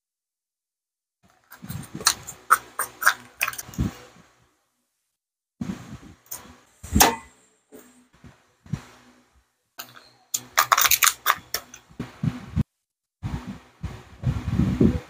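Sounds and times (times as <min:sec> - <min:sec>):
plastic wrapper crinkling: 0:09.8 - 0:11.8
clicks and rustles: 0:09.8 - 0:12.1.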